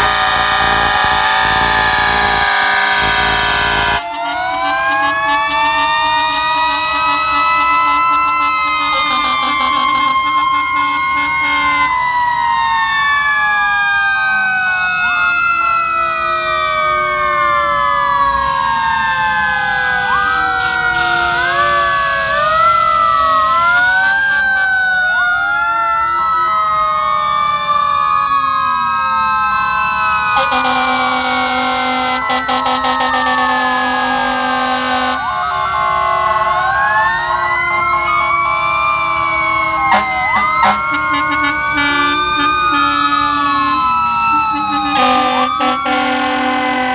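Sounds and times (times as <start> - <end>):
steady horn tone: 0.0 - 11.9, 30.4 - 35.3, 39.6 - 46.9
fire truck sirens wailing: 0.0 - 46.9.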